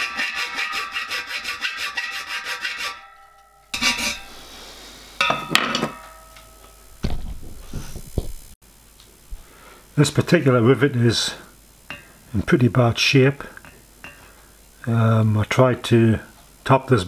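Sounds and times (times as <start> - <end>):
file rasping on metal: 0.0 - 4.5
scrapes: 0.0 - 6.4.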